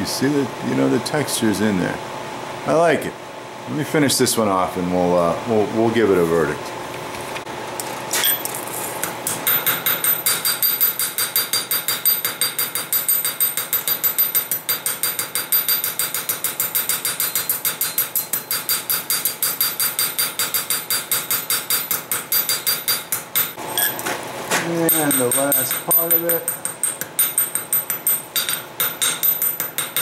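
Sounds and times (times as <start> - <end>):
small hammer on steel sheet: 9.2 - 23.9.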